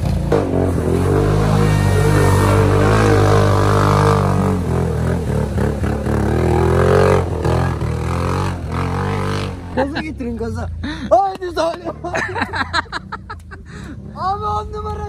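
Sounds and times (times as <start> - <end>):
wheels churning mud: 0.0 - 9.9
atv engine revving: 0.0 - 11.2.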